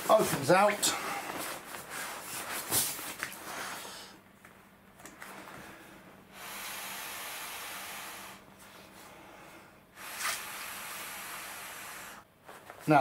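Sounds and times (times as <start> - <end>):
breath blown into valve: 6.3 - 8.5, 10.0 - 12.2.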